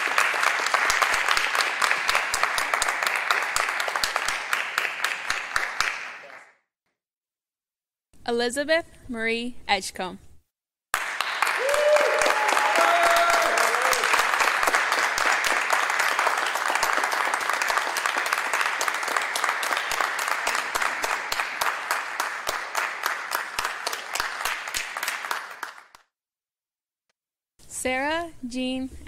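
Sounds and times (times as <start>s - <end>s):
audience applauding: 0.0s - 6.5s, 11.0s - 26.0s.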